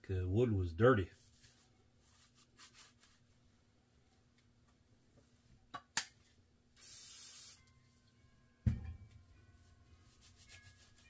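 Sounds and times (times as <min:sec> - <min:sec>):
aerosol can spray hiss: 0:06.8 - 0:07.6.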